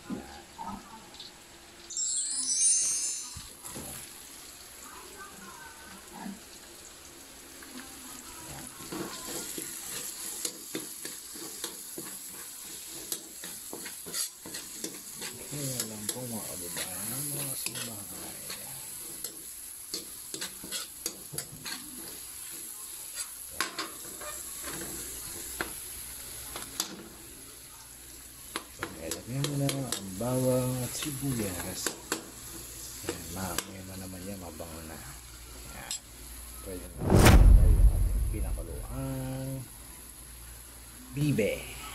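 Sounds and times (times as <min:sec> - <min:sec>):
garlic and onion sizzling in oil: 0:00.0 - 0:41.9
metal spoon scraping wok: 0:09.0 - 0:19.4, 0:20.0 - 0:22.2.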